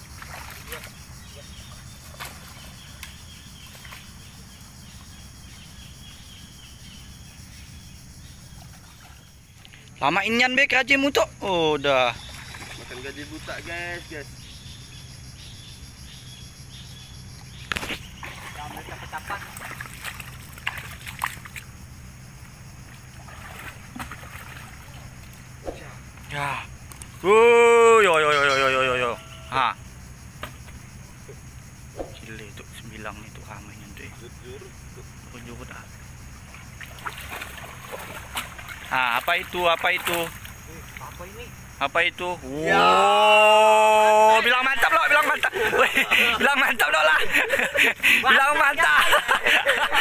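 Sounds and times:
small splashes: 0:00.0 - 0:04.1, 0:08.5 - 0:09.9, 0:12.2 - 0:13.7, 0:17.8 - 0:21.8, 0:22.8 - 0:26.3, 0:36.4 - 0:41.4
steady low hum: 0:11.2 - 0:43.1
high chirping call: 0:28.0 - 0:30.1.

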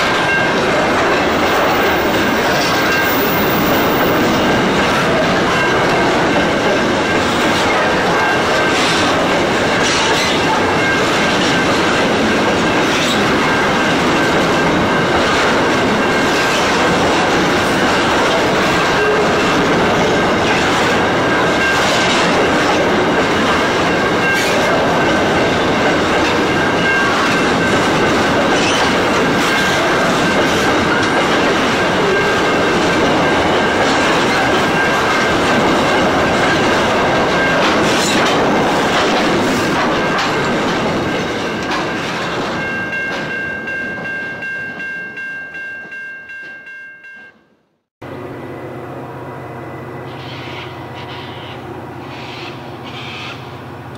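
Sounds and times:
wheels clacking over rail joints: 0:00.0 - 0:44.9
train wagons rolling on rails: 0:00.0 - 0:46.7
wheels squealing whine: 0:48.1 - 0:53.9.

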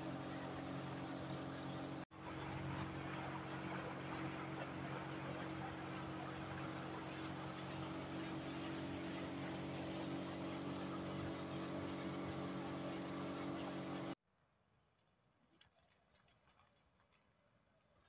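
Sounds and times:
boat motor running: 0:00.0 - 0:14.2
water and wind rushing: 0:00.0 - 0:14.2.

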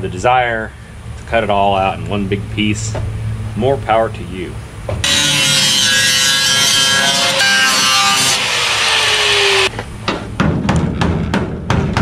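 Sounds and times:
angle grinder cutting sheet metal: 0:05.0 - 0:09.7.

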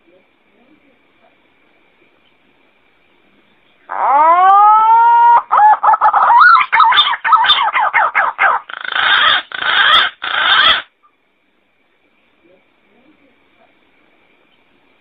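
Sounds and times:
pigeon calling: 0:03.8 - 0:10.9.

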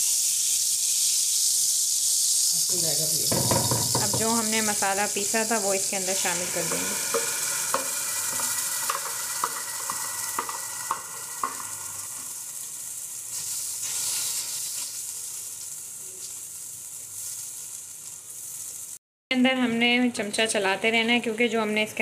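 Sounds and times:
paste sizzling in butter and oil: 0:00.0 - 0:19.0
spatula knocking on pot: 0:03.3 - 0:04.6, 0:06.7 - 0:11.7.

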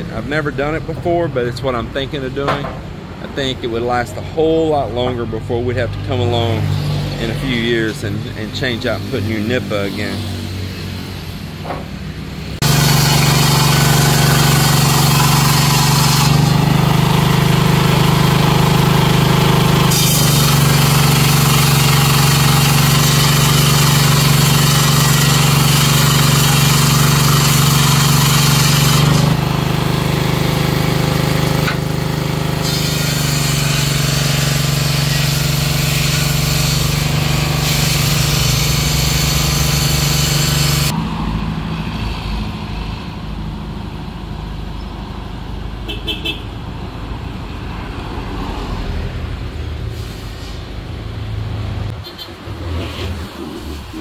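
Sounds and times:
wood cutting noise: 0:00.0 - 0:42.6
engine droning: 0:00.0 - 0:54.0
road traffic: 0:00.0 - 0:54.0.

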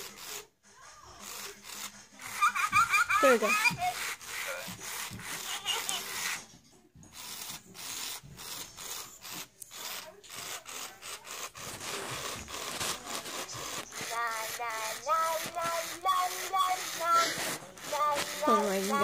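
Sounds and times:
hands rubbing plush toys: 0:01.2 - 0:19.0.

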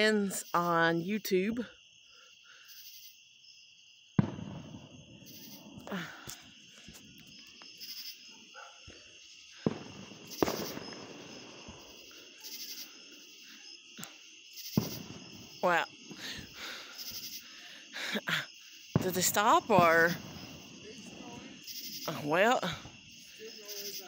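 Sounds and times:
insects chirping: 0:00.0 - 0:24.0
fireworks bangs with echo: 0:04.1 - 0:05.9, 0:08.8 - 0:12.5, 0:14.7 - 0:16.6, 0:18.9 - 0:24.0.

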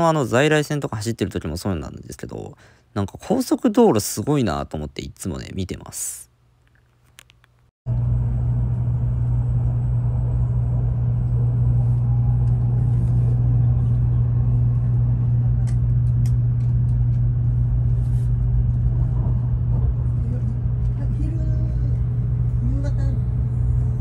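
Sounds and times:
train rumbling at speed: 0:07.9 - 0:24.0.

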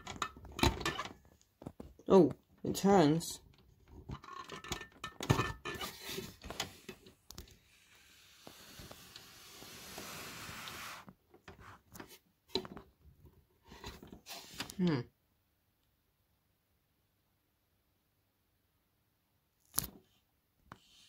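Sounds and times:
steady hiss: 0:07.6 - 0:11.1.

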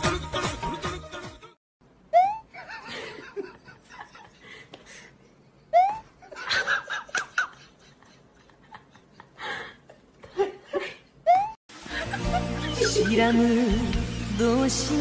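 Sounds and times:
person giggling: 0:02.1 - 0:13.3.

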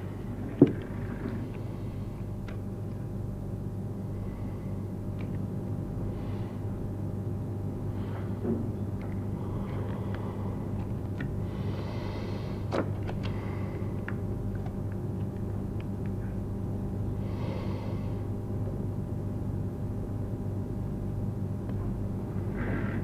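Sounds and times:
low electrical hum: 0:00.0 - 0:23.0.

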